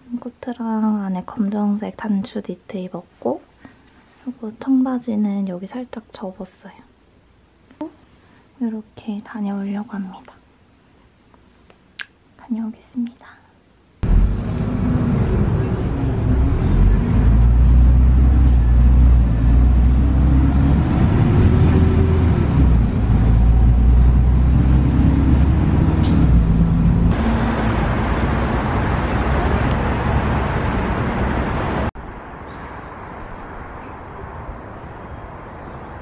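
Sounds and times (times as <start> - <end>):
outdoor background noise: 0.0 - 36.0
bus engine rumble: 14.0 - 32.0
road noise: 14.0 - 36.0.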